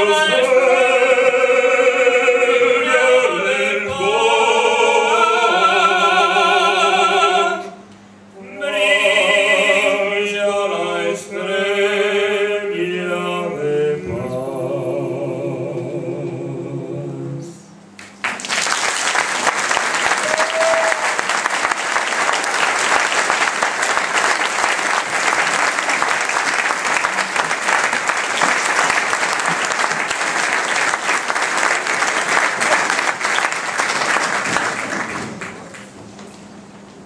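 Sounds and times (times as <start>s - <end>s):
two men singing a carol duet: 0.0s - 7.7s, 8.4s - 17.6s.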